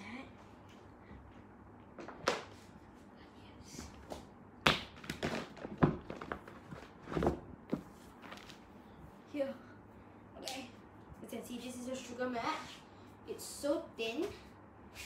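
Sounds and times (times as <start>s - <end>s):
yoga mat slapping on tile floor: 4.0s - 8.7s.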